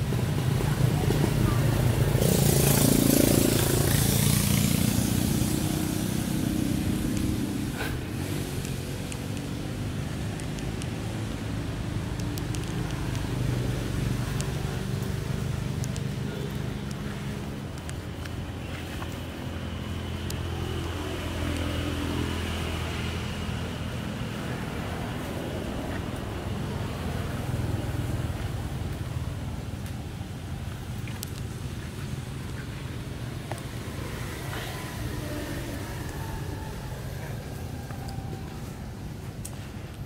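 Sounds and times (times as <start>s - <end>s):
engine running at low revs: 0.0s - 40.0s
faint clicks: 15.8s - 17.1s, 31.0s - 31.5s.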